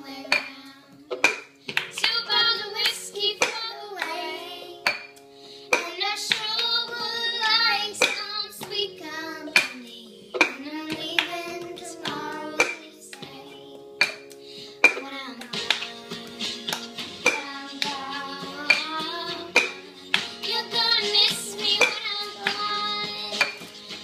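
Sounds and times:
girl singing: 0.0 - 1.2, 1.9 - 15.8, 17.2 - 23.8
hand claps: 1.2 - 4.2, 14.0 - 24.0.

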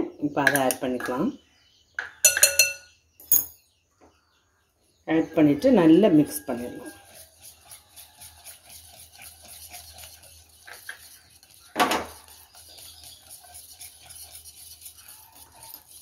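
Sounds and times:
knock on glass bowl: 2.2 - 2.8
whisk clicking in glass bowl: 6.5 - 16.0.

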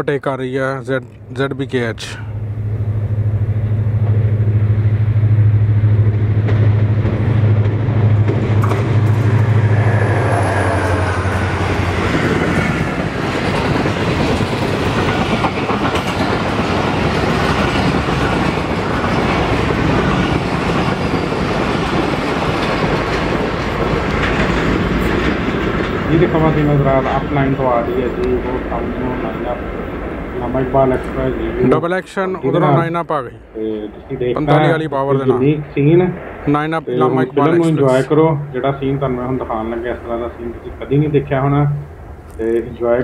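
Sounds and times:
diesel locomotive engine hum: 0.0 - 43.0
train wheels on rails rushing: 3.0 - 32.0.

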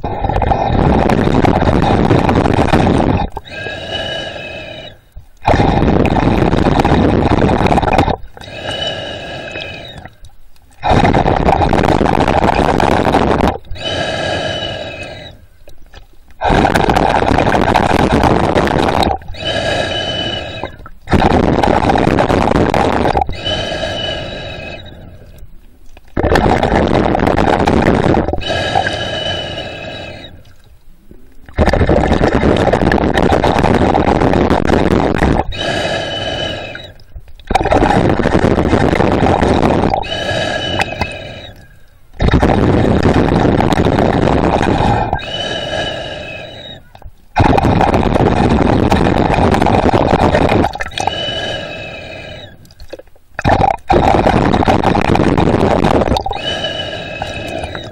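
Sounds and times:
underwater breathing: 0.0 - 57.9
whistling breath tone: 3.4 - 5.2, 8.4 - 10.2, 13.8 - 15.5, 19.3 - 20.9, 23.2 - 25.4, 28.4 - 30.5, 35.5 - 37.8, 40.0 - 42.4, 44.6 - 47.1, 50.9 - 52.7, 56.2 - 57.9.

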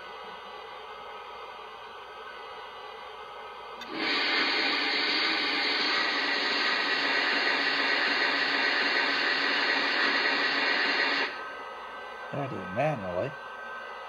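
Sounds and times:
loud steady steam hiss: 3.8 - 11.4.

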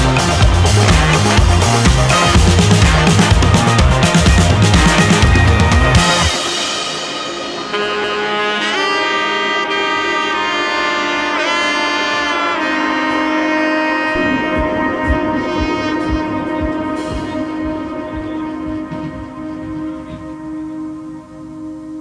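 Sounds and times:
steady low drum beat: 0.0 - 7.8, 14.2 - 20.5
horn-like lead melody: 0.0 - 22.0.

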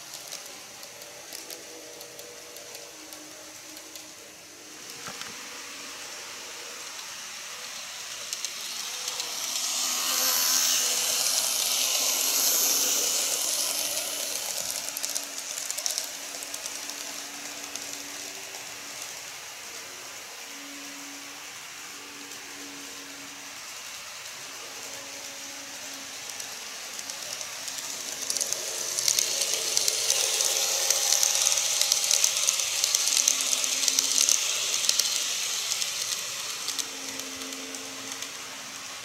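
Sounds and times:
model train passing: 0.0 - 39.0
wheels clicking over rail joints: 8.0 - 19.8, 23.8 - 39.0.

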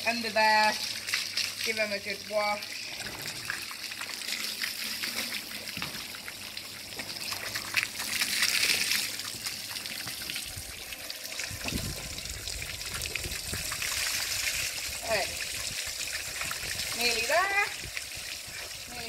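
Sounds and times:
hose water spraying and splashing: 0.0 - 19.0
low rumble: 11.5 - 13.9.

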